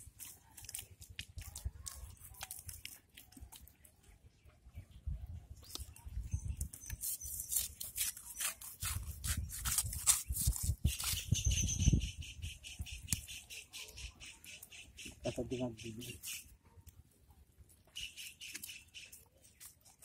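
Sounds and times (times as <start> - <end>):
hands crunching and scraping mud: 0.0 - 4.1, 5.6 - 11.5, 18.0 - 20.0.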